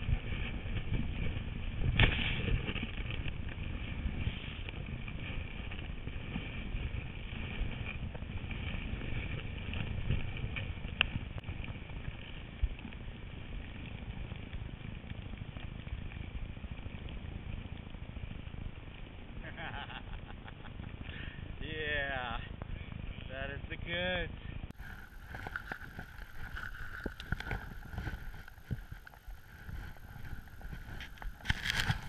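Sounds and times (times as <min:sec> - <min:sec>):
skis hissing through snow: 0:00.0 - 0:10.9, 0:24.7 - 0:32.0
wind on microphone: 0:00.0 - 0:32.0.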